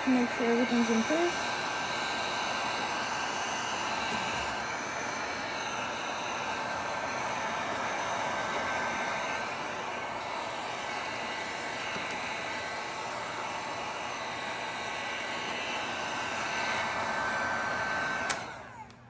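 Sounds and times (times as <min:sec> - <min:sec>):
heat gun blowing with whine: 0:00.0 - 0:19.0
heat gun switch click: 0:18.2 - 0:19.0.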